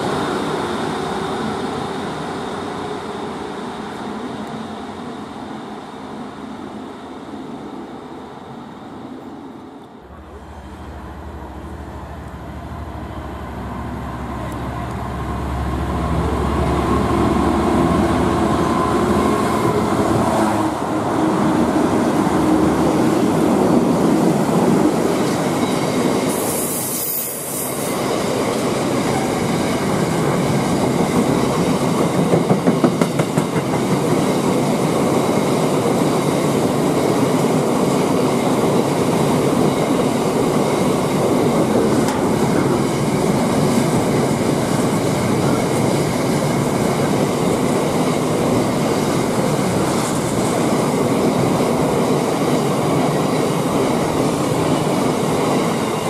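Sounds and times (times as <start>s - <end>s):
diesel locomotive engine: 0.0s - 56.0s
train wheels clickety-clack: 24.1s - 56.0s.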